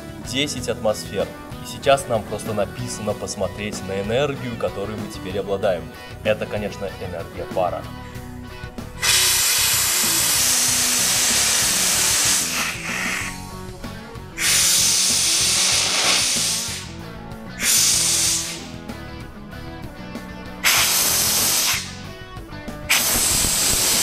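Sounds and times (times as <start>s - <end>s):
steam hissing blasts: 9.0s - 13.5s, 14.4s - 17.0s, 17.6s - 18.8s, 20.6s - 22.0s, 22.9s - 24.0s.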